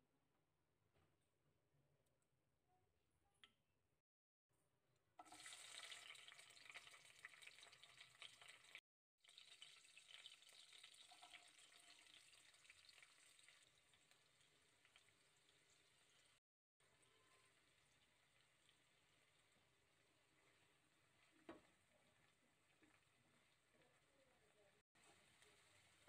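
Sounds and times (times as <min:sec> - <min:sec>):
food sizzling in a frying pan: 0:05.2 - 0:26.0.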